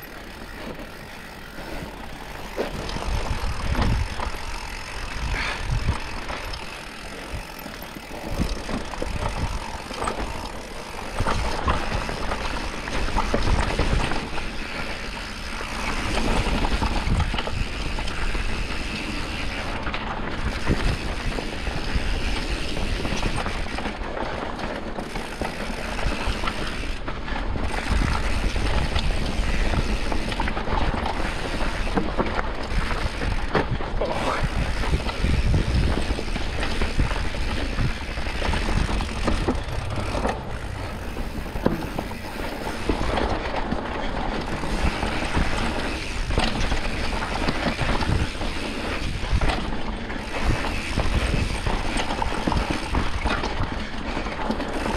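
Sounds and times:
bike parts rattling: 0.0 - 54.9
tyres rolling over dirt: 0.0 - 54.9
wind buffeting microphone: 2.0 - 10.3, 25.0 - 53.9.

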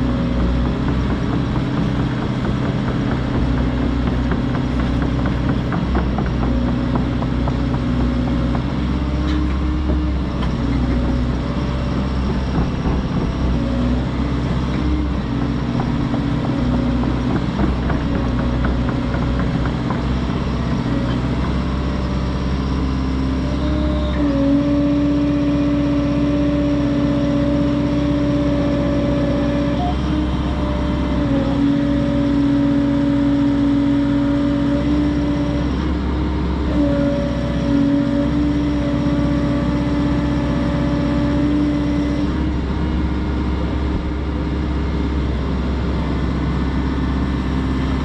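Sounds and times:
diesel engine running: 0.0 - 48.0
hydraulic whine: 29.2 - 32.2.

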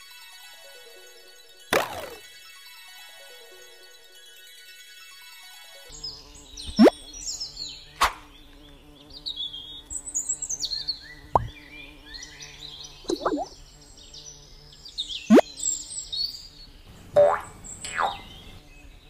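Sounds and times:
birds chirping: 5.9 - 19.0
cartoon rising swoop: 6.7 - 6.9, 13.1 - 13.5
short sharp pops: 8.0 - 8.3, 11.3 - 11.5.

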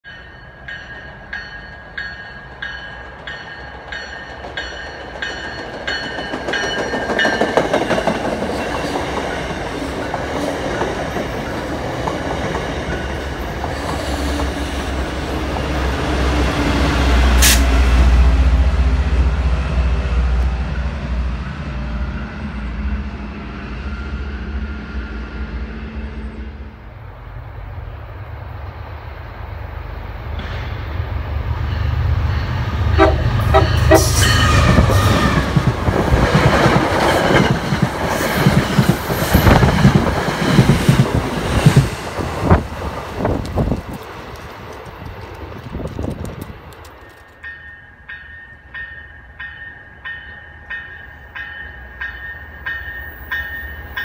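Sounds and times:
train bell ringing: 0.0 - 9.6, 31.5 - 35.4, 47.0 - 54.0
train coaches rushing and rattling: 0.6 - 21.0, 30.4 - 47.7.

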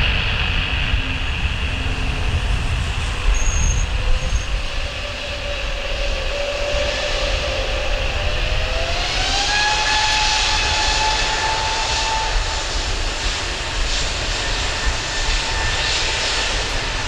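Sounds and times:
low rumble: 0.0 - 9.4
jet engines whining: 0.0 - 17.0.

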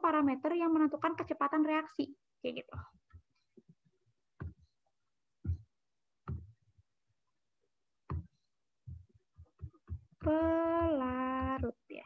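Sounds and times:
pen knocking on whiteboard: 6.3 - 6.6, 8.1 - 8.3.

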